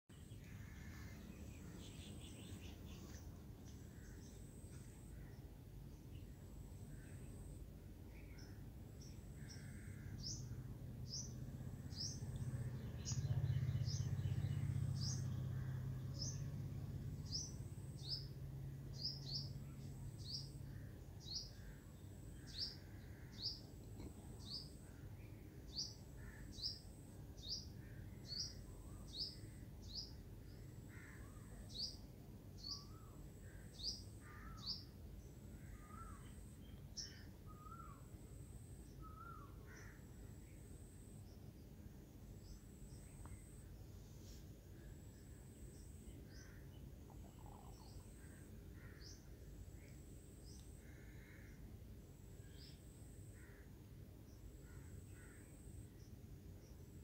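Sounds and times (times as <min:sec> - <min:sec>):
small bird chirping: 0:08.2 - 0:16.5, 0:17.1 - 0:25.0, 0:45.0 - 0:49.2.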